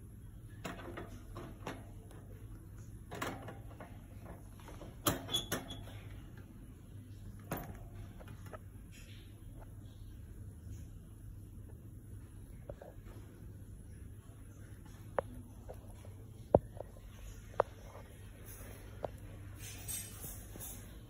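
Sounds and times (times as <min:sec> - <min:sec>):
wire cage clicks and rattles: 0:00.5 - 0:06.4, 0:19.6 - 0:21.0.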